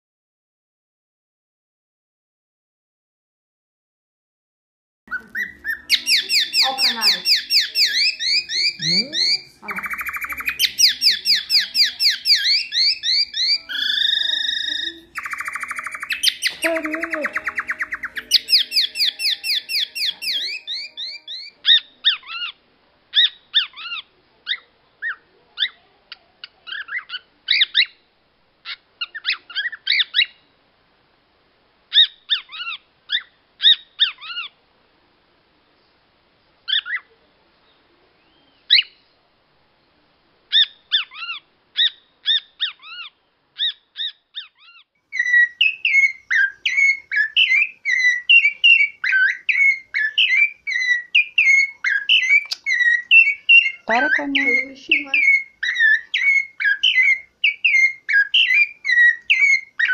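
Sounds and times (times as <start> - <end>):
warbling bird phrase: 5.1 - 22.5, 45.2 - 59.9
canary-style trill: 5.1 - 25.8, 40.5 - 59.9.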